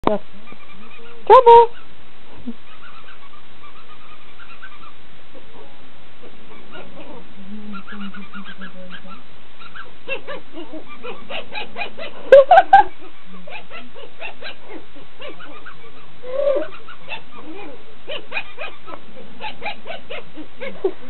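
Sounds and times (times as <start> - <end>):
puppy yipping and whining: 6.5 - 7.2, 7.9 - 20.9.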